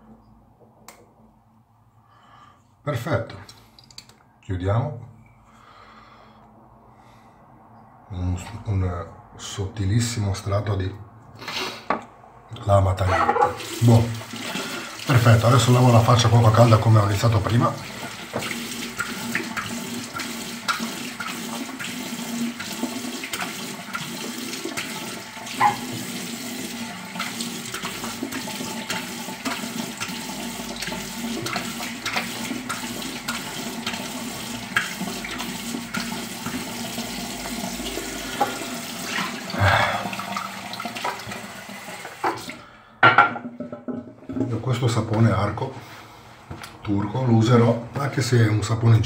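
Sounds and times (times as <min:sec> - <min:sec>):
tap water running into sink: 0:13.2 - 0:44.6.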